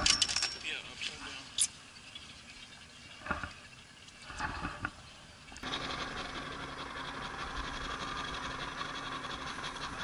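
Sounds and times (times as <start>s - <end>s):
water noise: 0.0s - 10.0s
outboard motor running: 3.2s - 10.0s.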